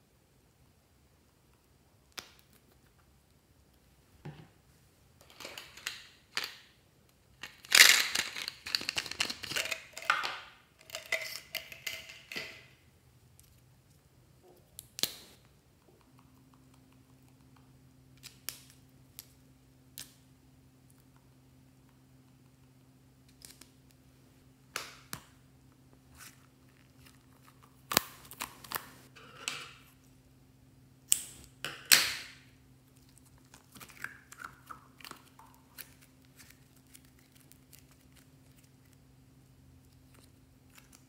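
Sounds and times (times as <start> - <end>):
markers rattling in a jar: 7.4 - 10.2.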